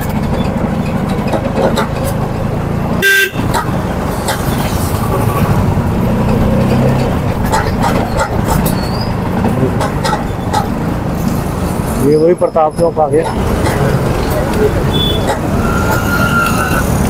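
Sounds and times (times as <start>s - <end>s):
street traffic: 0.0s - 17.0s
vehicle horn toot: 3.0s - 3.5s, 14.9s - 16.8s.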